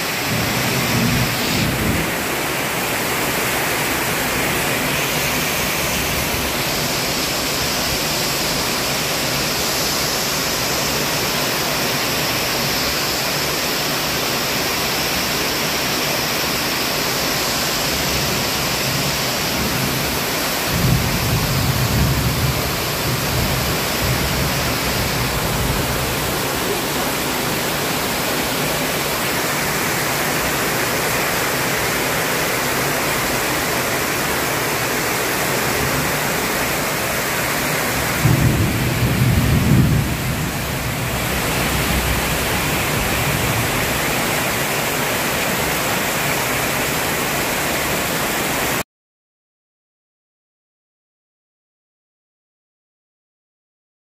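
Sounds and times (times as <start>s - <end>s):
heavy rain on foliage and metal roof: 0.0s - 48.8s
low rumble of thunder: 0.3s - 2.2s, 20.7s - 26.5s, 38.0s - 44.0s.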